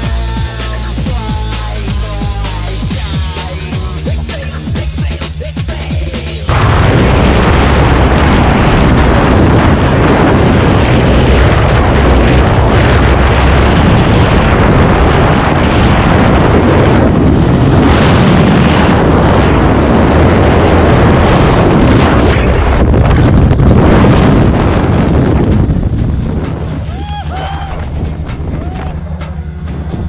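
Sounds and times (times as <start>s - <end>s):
wind roaring over microphone: 6.4s - 30.0s.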